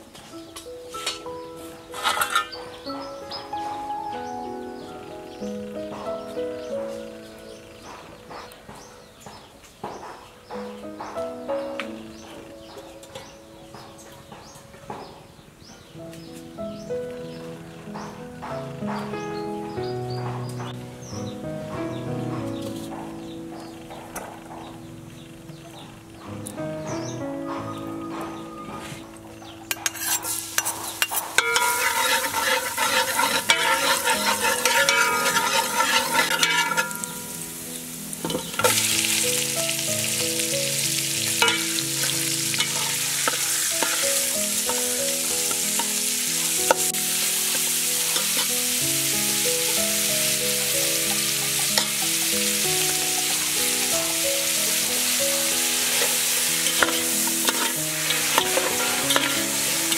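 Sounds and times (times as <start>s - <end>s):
ladle scraping metal pot: 1.9s - 2.6s, 29.7s - 37.3s, 38.2s - 39.2s, 41.3s - 46.0s, 55.9s - 59.9s
ribs sizzling in oil: 29.6s - 59.9s
garlic sizzling in hot oil: 29.7s - 59.9s.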